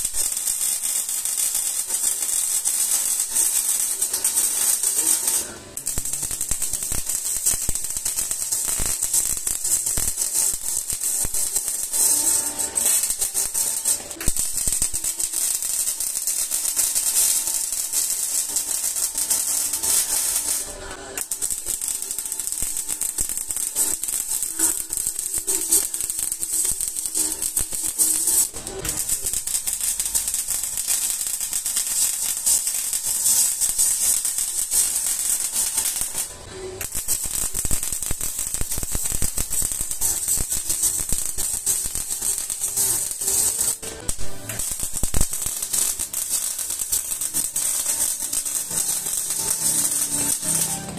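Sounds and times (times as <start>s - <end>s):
welding arc crackling sizzle: 0.0s - 50.9s.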